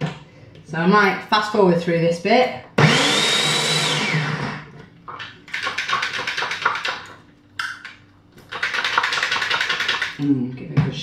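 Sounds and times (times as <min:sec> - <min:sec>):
blender motor: 0:02.8 - 0:04.7.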